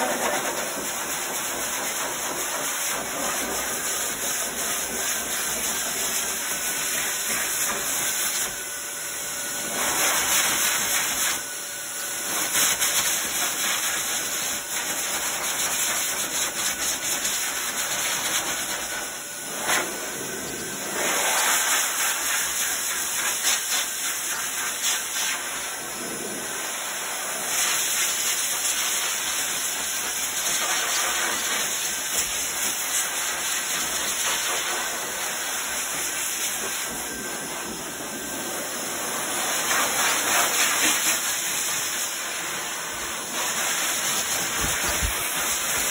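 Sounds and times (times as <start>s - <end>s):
pet dryer blowing air: 0.0s - 45.9s.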